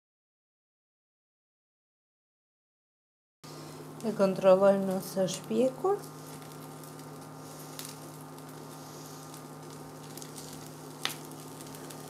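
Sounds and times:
electric cooktop hum: 3.4s - 12.0s
faint frying sizzle: 3.5s - 12.0s.

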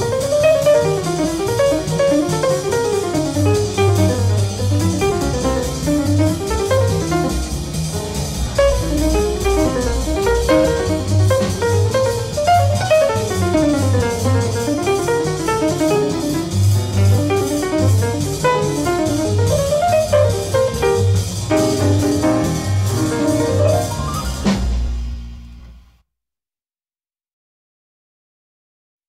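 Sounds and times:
instrumental jazz: 0.0s - 25.7s
low bass pulses: 3.6s - 14.6s.

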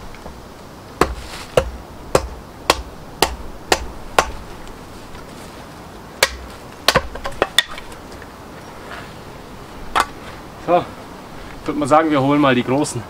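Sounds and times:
axe chopping wood: 1.0s - 4.4s, 6.2s - 7.9s
wood splitting: 1.0s - 4.5s, 6.2s - 8.0s.

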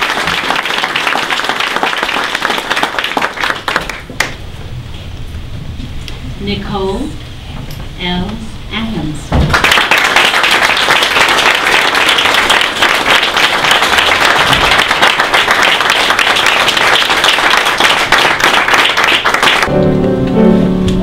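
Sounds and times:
audience applauding: 0.0s - 4.4s, 9.5s - 19.7s
background music: 19.7s - 21.0s.

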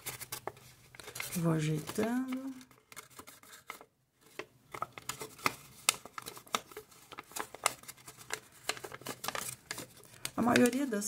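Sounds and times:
paper crinkling and crackling: 0.0s - 11.0s.

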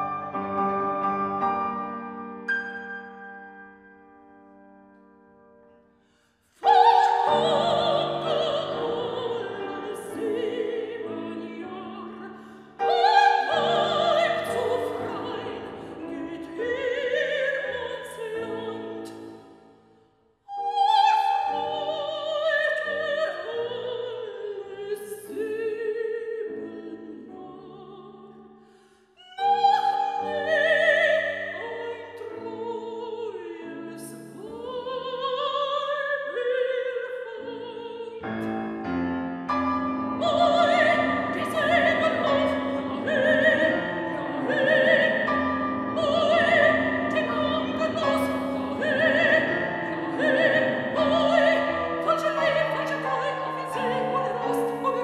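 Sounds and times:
piano accompaniment: 0.0s - 6.0s, 6.6s - 19.6s, 38.2s - 55.0s
operatic soprano singing: 6.6s - 19.6s, 20.5s - 28.6s, 29.2s - 38.8s, 39.9s - 55.0s.

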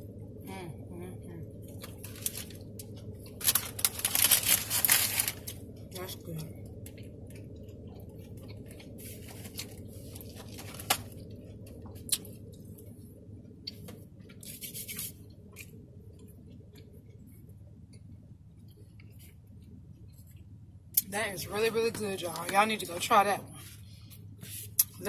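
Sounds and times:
low hum inside a car: 0.0s - 25.0s
paper food wrapper crinkling: 1.8s - 5.7s, 8.2s - 11.3s.

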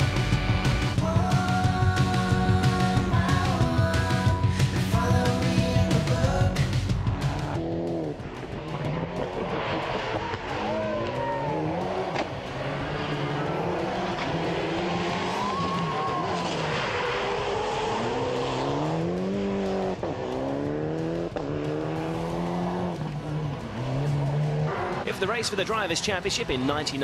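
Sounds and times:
car engine revving past: 7.3s - 25.2s.

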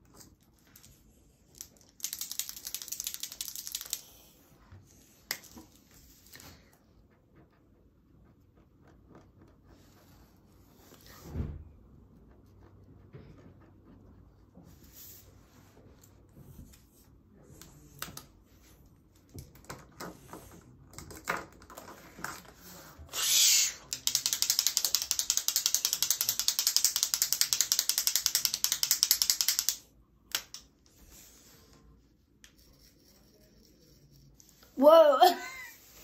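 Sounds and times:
crayon scratching on paper: 32.5s - 35.1s.

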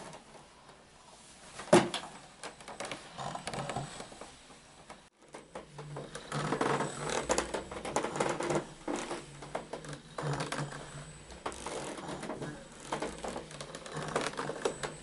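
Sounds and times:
crackle of clicks and rustling: 1.5s - 15.0s
electric unicycle motor whirring: 5.9s - 15.0s.

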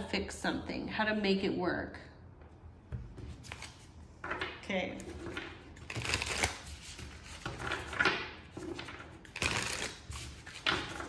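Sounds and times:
cards being shuffled by hand: 3.2s - 3.9s, 5.0s - 11.0s.

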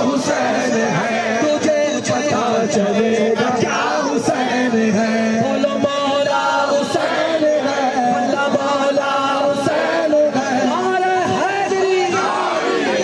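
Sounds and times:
crowd singing along: 0.0s - 13.0s
men chanting through microphones: 0.0s - 13.0s.

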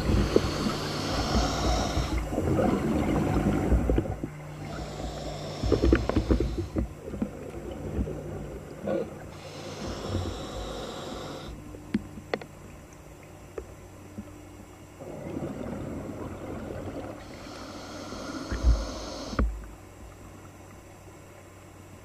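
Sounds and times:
diver breathing underwater: 0.0s - 3.9s, 4.5s - 7.0s, 8.9s - 11.6s, 15.0s - 19.4s
bubbling: 15.0s - 19.4s.

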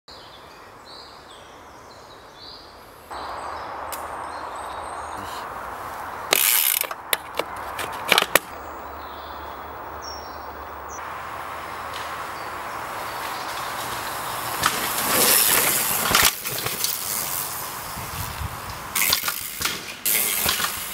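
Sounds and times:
steady background hiss: 0.2s - 20.9s
sharp drivetrain clicks: 5.8s - 9.1s, 11.3s - 20.9s
bike freewheel ratchet buzzing: 6.3s - 7.4s, 12.7s - 20.9s.

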